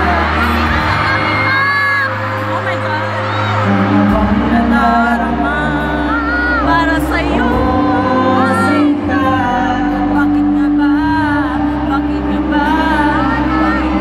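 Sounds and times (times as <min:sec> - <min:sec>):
pop backing music over pa: 0:00.0 - 0:14.0
man singing: 0:02.3 - 0:14.0.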